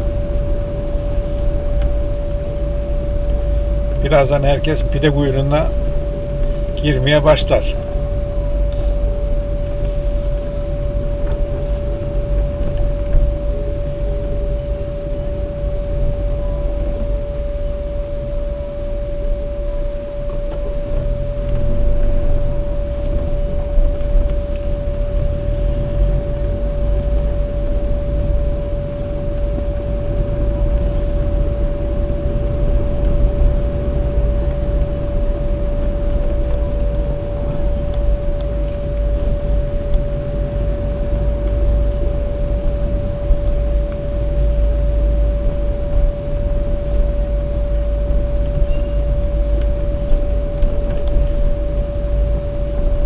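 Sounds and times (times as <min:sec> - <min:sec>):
constant humming tone: 0:00.0 - 0:53.0
vehicle engine and road noise: 0:00.0 - 0:53.0.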